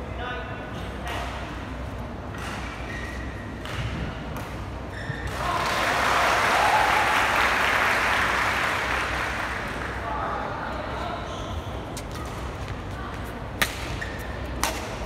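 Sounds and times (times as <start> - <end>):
spectators applauding and cheering: 5.4 - 10.0.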